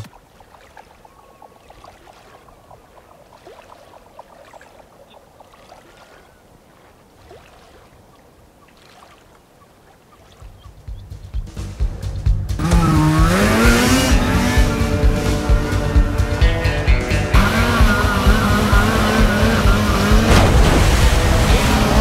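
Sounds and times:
water lapping at shore: 0.0 - 16.6, 17.2 - 22.0.

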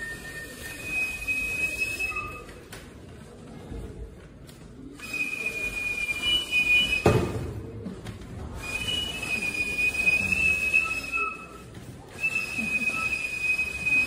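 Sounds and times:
high steady whistling tone: 0.0 - 2.6, 5.0 - 7.4, 8.6 - 14.0.

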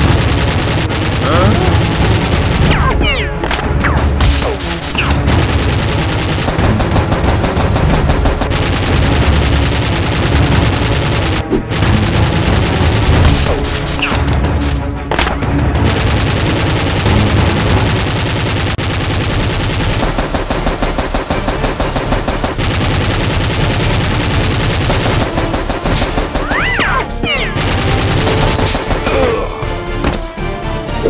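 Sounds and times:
automatic gunfire bursts: 0.0 - 2.9, 5.2 - 13.2, 15.8 - 26.8, 27.4 - 29.1
background music: 0.0 - 31.0.

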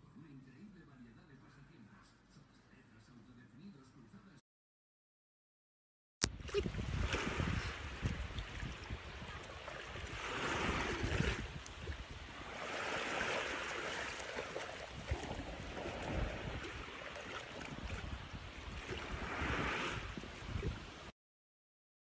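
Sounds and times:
sea water lapping: 6.2 - 21.1
wind gusting on microphone: 6.2 - 21.1.

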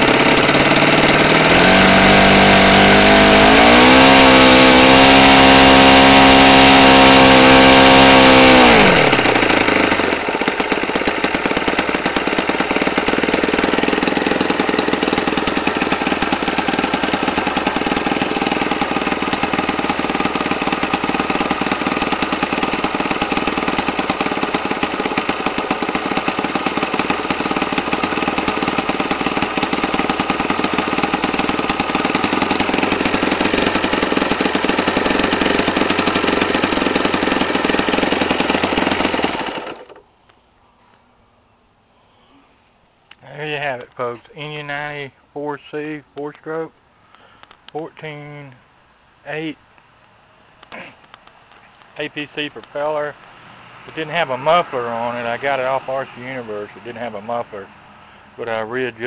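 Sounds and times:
model airplane engine running: 0.0 - 40.0.

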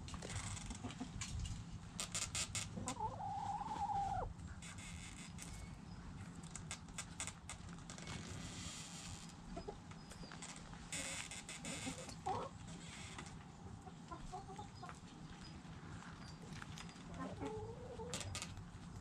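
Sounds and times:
chickens scratching in dirt: 0.2 - 4.3, 14.1 - 19.0
chicken calling: 2.8 - 4.3.

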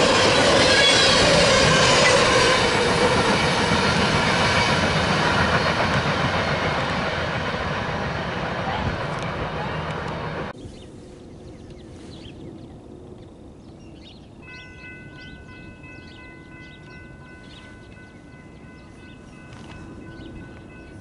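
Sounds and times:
loud train noise: 0.0 - 10.6, 11.9 - 21.0
birds chirping: 10.5 - 21.0.

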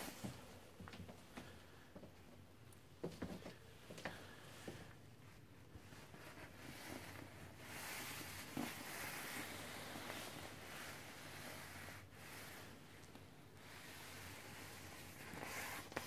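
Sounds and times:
nylon jacket rustling: 5.9 - 12.8, 13.6 - 16.0.

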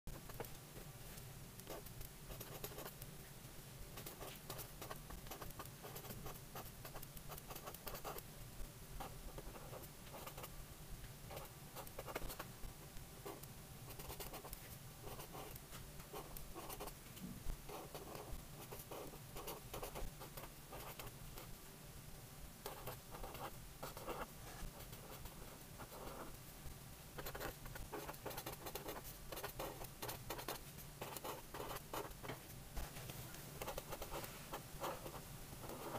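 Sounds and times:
marker scratching on paper: 4.0 - 8.2, 9.4 - 10.5, 11.3 - 12.4, 13.3 - 16.9, 17.7 - 21.1, 22.7 - 26.3, 27.2 - 32.2, 33.6 - 35.9.

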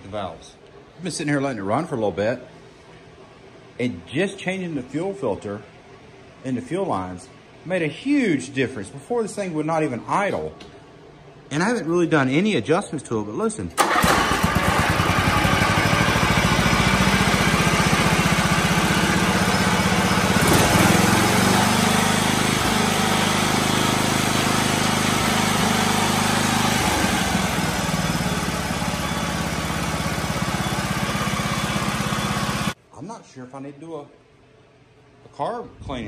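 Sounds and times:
lawn tractor engine running: 13.8 - 32.8.

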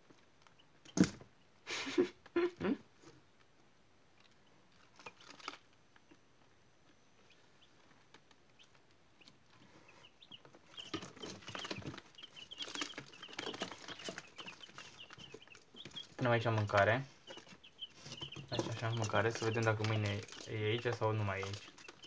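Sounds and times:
chicks peeping: 0.0 - 22.0
tapping and scratching: 8.1 - 22.0.

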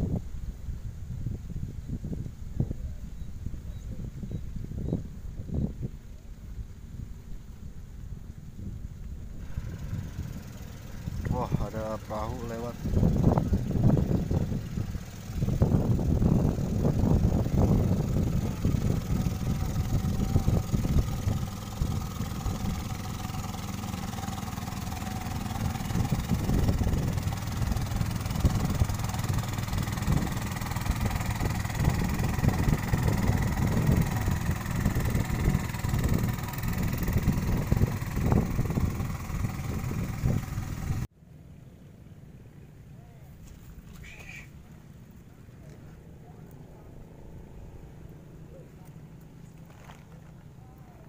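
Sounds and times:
constant low rumble: 0.0 - 51.0
small boat engine running: 9.0 - 41.1, 43.4 - 51.0.

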